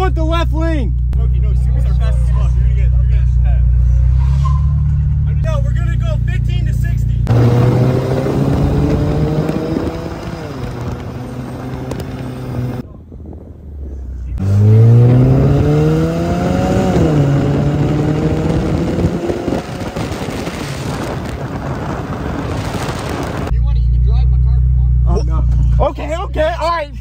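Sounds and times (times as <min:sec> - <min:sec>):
car exhaust accelerating: 0:00.0 - 0:27.0
wind and road rush: 0:00.0 - 0:27.0.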